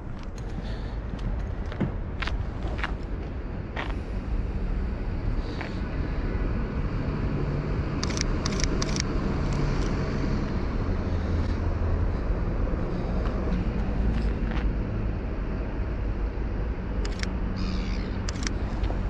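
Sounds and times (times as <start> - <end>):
road traffic rumble: 0.0 - 19.0
sharp clicks: 8.0 - 10.0, 17.0 - 17.4, 18.0 - 19.0.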